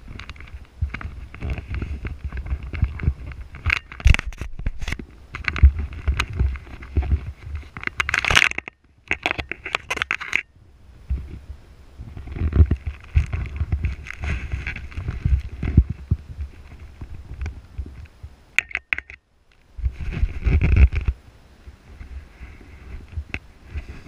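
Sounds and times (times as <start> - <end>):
wind buffeting microphone: 0.0 - 8.1, 10.6 - 18.4.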